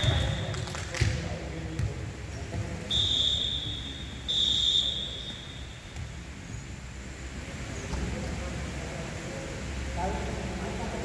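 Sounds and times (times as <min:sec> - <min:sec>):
referee's whistle blasts: 0:02.9 - 0:05.8.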